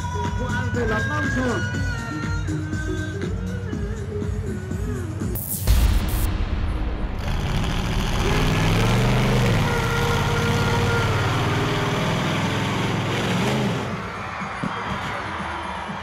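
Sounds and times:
monster truck engine revving: 7.2 - 14.0.

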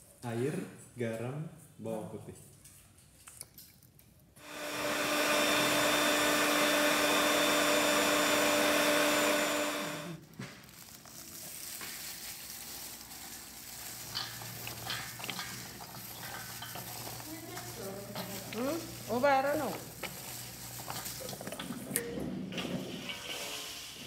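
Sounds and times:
blender whining: 4.4 - 10.2, 14.7 - 21.9.

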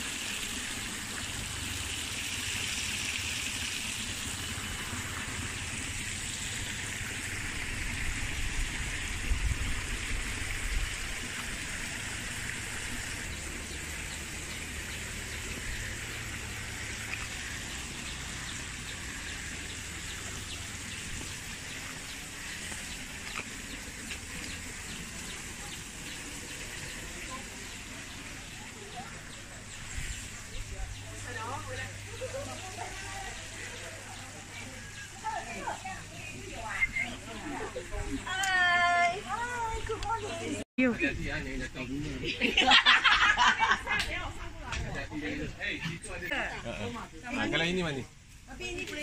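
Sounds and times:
birds calling: 11.6 - 40.6.

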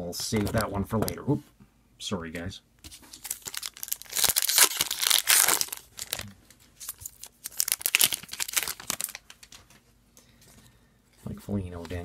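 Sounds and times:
foil wrapper tearing and crinkling: 3.1 - 9.6.

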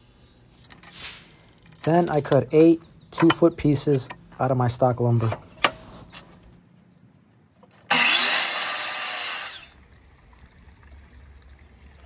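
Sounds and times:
miter saw cutting wood: 7.9 - 9.8.

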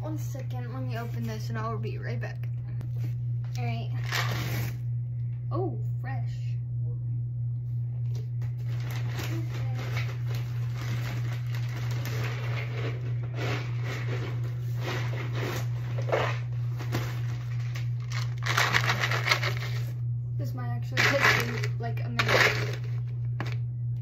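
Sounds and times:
steady low hum: 0.0 - 24.0
packaging crinkling and rustling: 8.4 - 19.9, 21.0 - 23.6.

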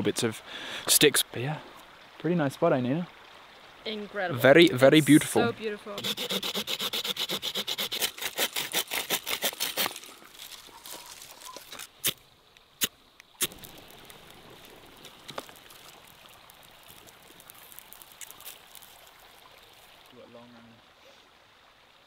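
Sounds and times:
stream running: 0.0 - 22.0
sharp cracks: 6.0 - 12.2, 12.8 - 19.1
twig fire crackling: 6.0 - 20.1.

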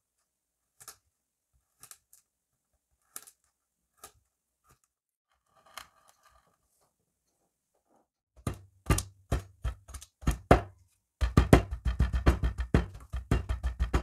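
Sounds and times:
hammer knocking on sand: 8.4 - 14.0.

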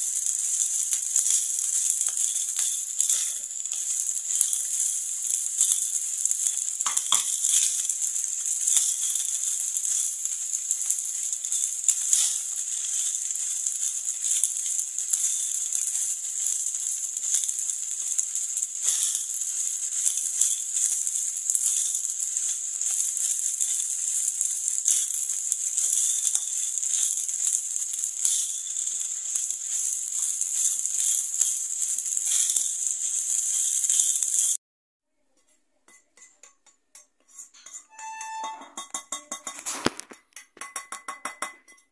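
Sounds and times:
rice sizzling in a frying pan: 0.0 - 34.6, 35.9 - 41.4
spatula stirring and scraping: 0.0 - 34.6, 35.3 - 40.2.

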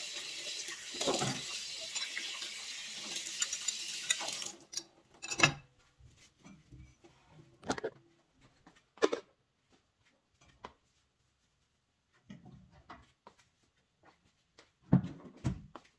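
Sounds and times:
kitchen items knocking and clattering: 0.9 - 2.4, 7.6 - 8.0, 9.0 - 9.3.

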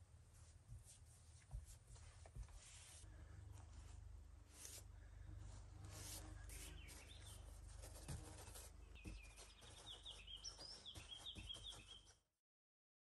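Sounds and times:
small bird chirping: 6.5 - 12.2.

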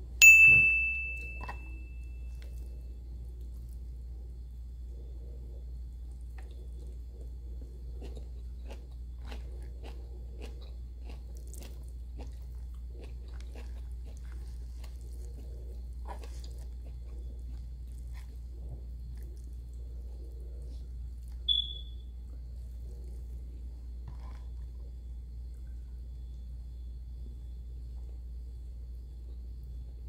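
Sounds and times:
steady low hum: 0.0 - 30.0
person chewing with wet mouth clicks: 6.3 - 18.4.

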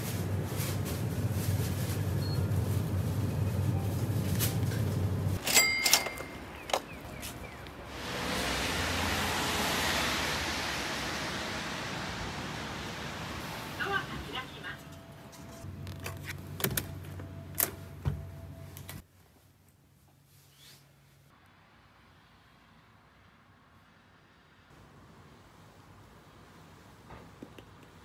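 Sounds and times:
traffic on wet roads: 7.4 - 14.8.

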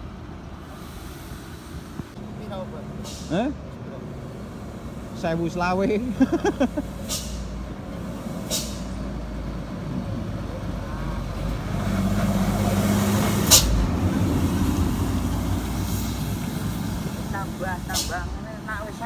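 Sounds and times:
truck diesel engine passing: 0.0 - 19.0
air brake hisses: 0.6 - 2.1, 3.0 - 3.5, 6.8 - 9.0, 17.9 - 18.3.

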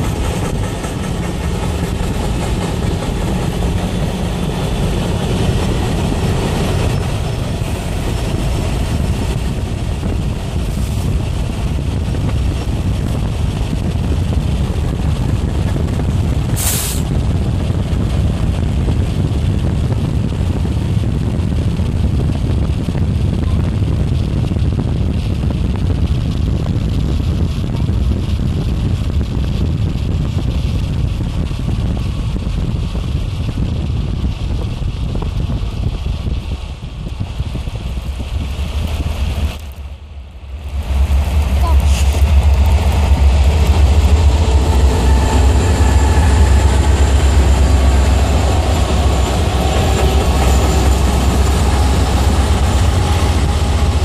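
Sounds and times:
car road and wind rumble: 0.0 - 54.0
short sharp hiss: 16.6 - 17.1.

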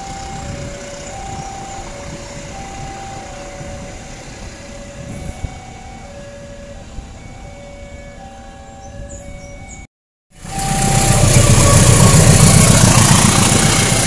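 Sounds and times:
two-note electronic warning tone: 0.0 - 12.6
train wheels rumbling on rails: 10.4 - 14.0.

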